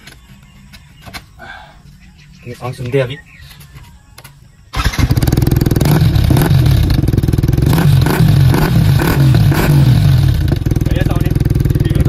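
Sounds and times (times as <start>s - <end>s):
motorcycle engine revving: 4.7s - 12.0s.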